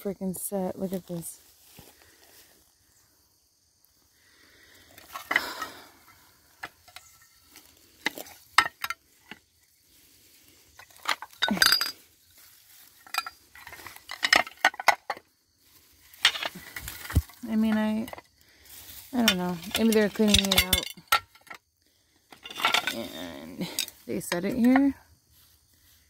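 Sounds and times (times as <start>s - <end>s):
rustling of weeds and dry leaves: 0.0s - 26.0s
china plates clinking: 11.4s - 12.0s, 19.2s - 21.4s.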